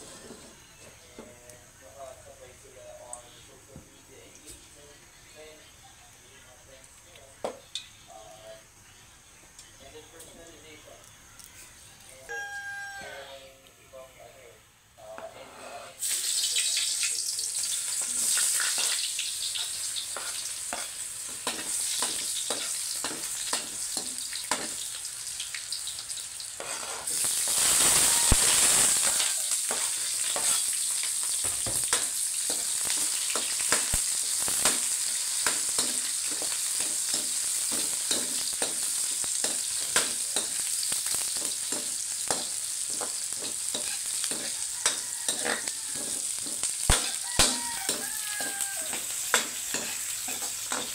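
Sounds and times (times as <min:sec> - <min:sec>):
garlic and onions sizzling in oil: 0:16.0 - 0:50.9
metal ladle scraping pan: 0:26.6 - 0:27.1.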